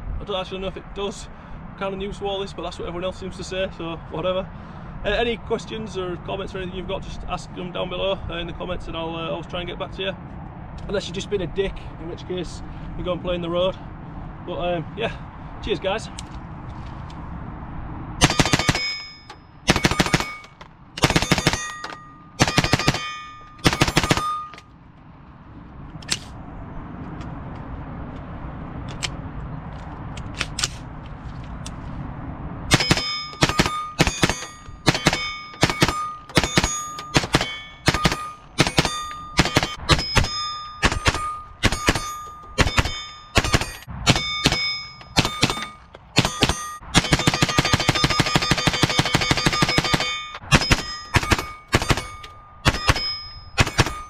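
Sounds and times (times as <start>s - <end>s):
rifle shots: 18.2s - 19.1s, 19.7s - 24.6s, 32.7s - 54.0s
steel targets ringing: 18.2s - 24.8s, 32.7s - 54.0s.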